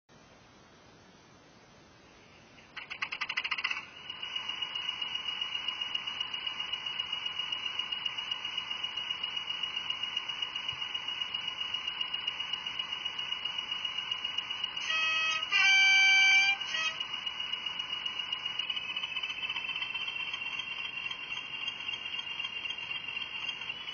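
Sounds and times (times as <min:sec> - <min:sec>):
model locomotive engine idling: 0:02.7 - 0:23.9
loud two-tone horn: 0:14.8 - 0:17.0.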